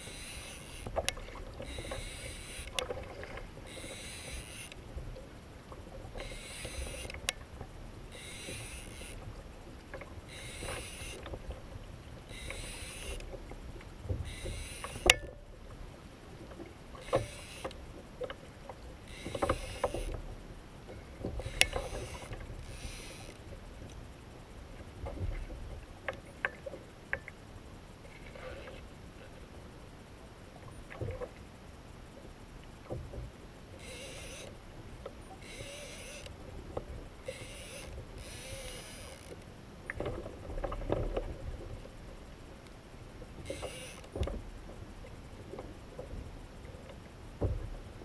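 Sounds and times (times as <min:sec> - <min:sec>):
knocks and clicks from boat: 0:00.0 - 0:24.1, 0:24.7 - 0:27.4, 0:30.8 - 0:31.5, 0:32.2 - 0:48.0
water swishing against hull: 0:00.0 - 0:48.0.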